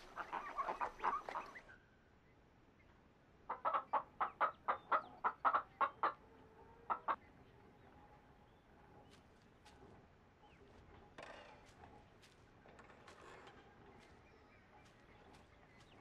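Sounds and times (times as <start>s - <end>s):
hen clucking: 0.0s - 1.7s, 3.5s - 7.2s.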